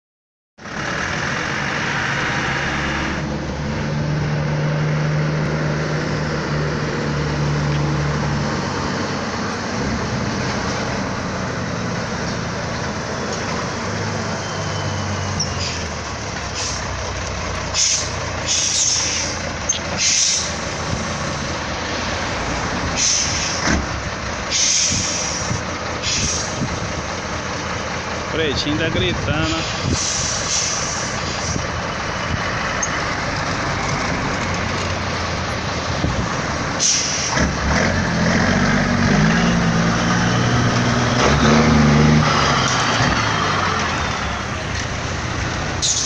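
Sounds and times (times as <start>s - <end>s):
diesel truck engine revving: 0.6s - 46.0s
air brake hisses: 17.7s - 19.4s, 20.0s - 20.5s, 22.9s - 23.6s, 24.5s - 26.6s, 29.6s - 31.6s, 36.8s - 37.4s.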